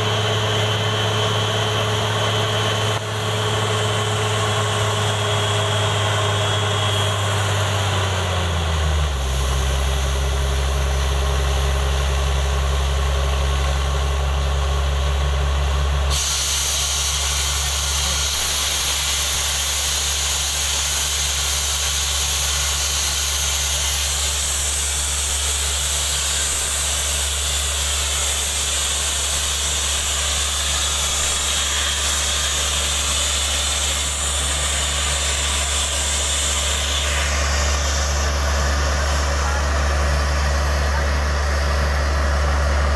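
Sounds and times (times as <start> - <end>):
drilling rig engine drone: 0.0 - 42.9
high-pressure air rushing hiss: 16.1 - 39.8.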